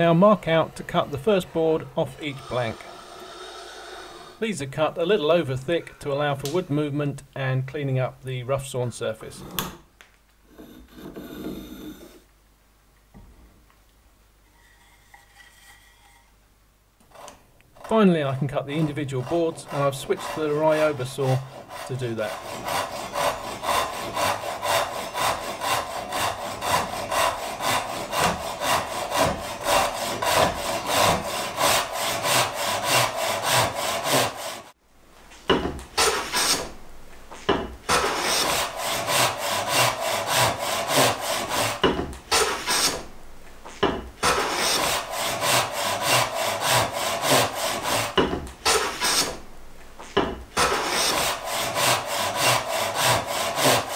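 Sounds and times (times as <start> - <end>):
hand saw cutting wood: 0.0 - 4.4, 17.0 - 34.8, 35.9 - 36.8, 37.4 - 43.1, 43.7 - 53.9
hand tool scraping wood: 0.0 - 4.4, 10.5 - 12.2, 14.5 - 16.3, 17.0 - 34.8, 35.5 - 53.9.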